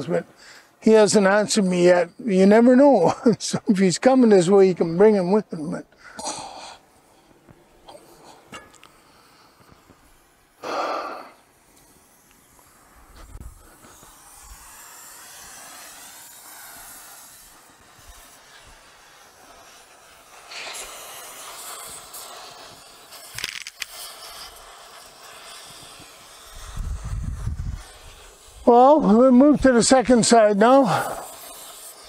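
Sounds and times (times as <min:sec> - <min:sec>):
steady hiss: 0:00.0 - 0:32.0
rough rasping bursts: 0:08.0 - 0:32.0.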